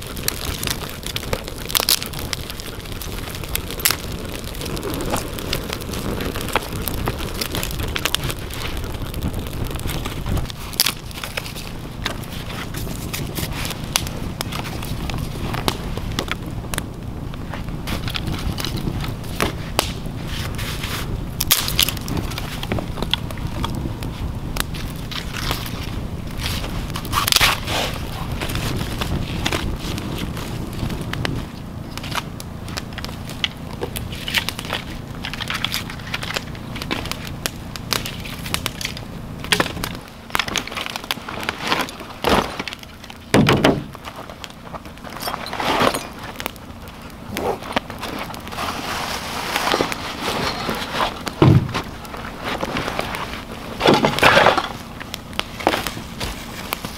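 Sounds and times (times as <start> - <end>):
campfire crackling and popping: 0.0 - 56.9
pack rustling and scraping: 45.1 - 46.4, 47.3 - 54.8
thump: 51.4 - 51.8.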